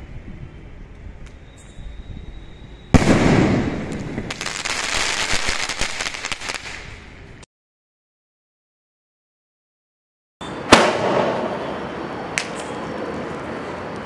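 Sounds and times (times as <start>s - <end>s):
firework shell rising whistle: 1.3s - 4.2s, 10.4s - 13.0s
firework bang: 2.9s - 4.4s, 10.7s - 12.5s
firework crackling: 2.9s - 7.4s, 10.7s - 14.0s.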